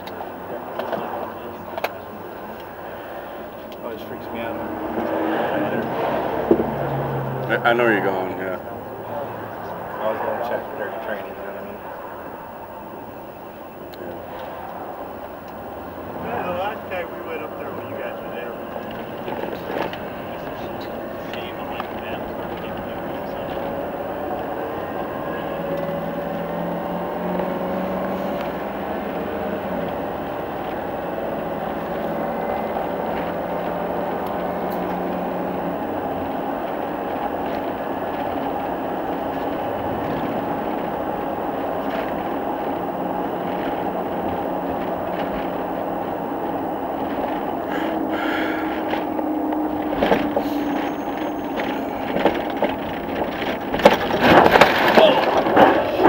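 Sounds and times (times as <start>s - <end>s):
engine and road noise: 0.0s - 56.0s
faint whining tones: 0.0s - 56.0s
knocks and rattles: 48.8s - 56.0s.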